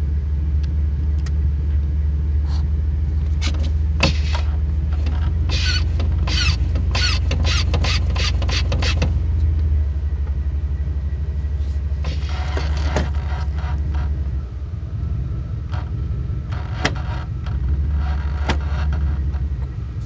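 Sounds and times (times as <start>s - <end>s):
vehicle engine idling: 0.0s - 20.0s
sharp creaks and squeaks: 3.3s - 9.2s, 11.5s - 14.4s, 15.6s - 20.0s.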